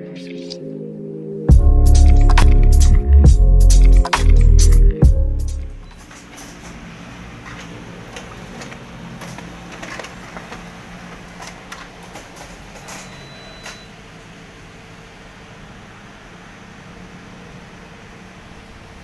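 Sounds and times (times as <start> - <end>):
photocopier fans humming: 5.6 - 19.0.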